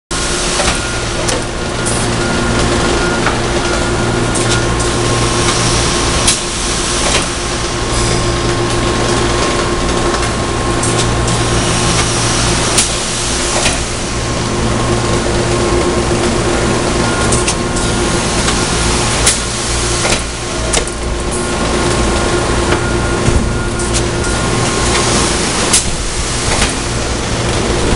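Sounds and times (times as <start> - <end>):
machine hum and hiss: 0.1 - 27.9
sharp machine clacks: 0.5 - 14.1, 17.1 - 23.0.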